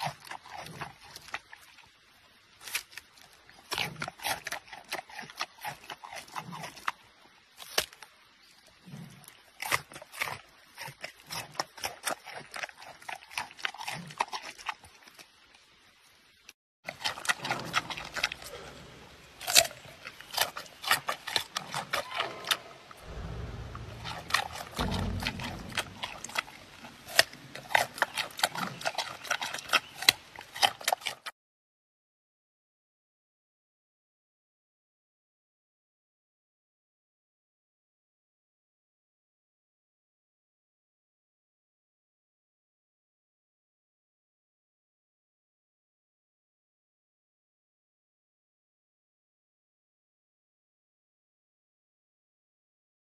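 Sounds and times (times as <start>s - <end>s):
panda crunching carrot: 0.0s - 1.7s, 2.6s - 7.0s, 9.6s - 15.3s, 16.9s - 31.3s
panda chewing with wet crunches: 0.0s - 1.9s, 2.6s - 7.0s, 8.9s - 15.7s, 16.9s - 31.3s.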